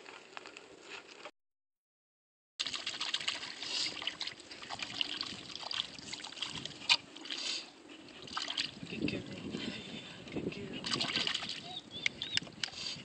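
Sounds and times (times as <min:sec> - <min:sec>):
hand splashing pool water: 0:02.6 - 0:07.6, 0:08.2 - 0:08.8, 0:10.8 - 0:11.8.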